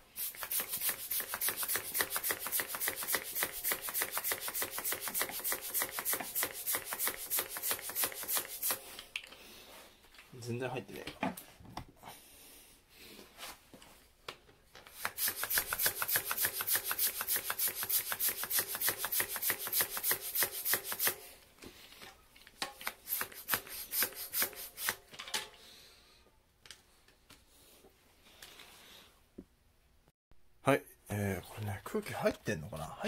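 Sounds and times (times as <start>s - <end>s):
bicycle pump rasping strokes: 0.2s - 8.8s, 14.9s - 21.2s, 23.0s - 25.0s.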